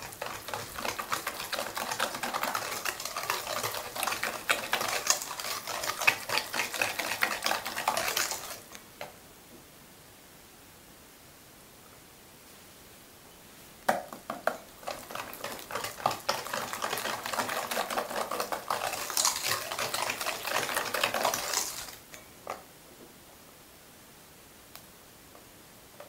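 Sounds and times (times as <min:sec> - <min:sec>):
whisk scraping metal bowl: 0:00.0 - 0:08.6, 0:14.8 - 0:22.0.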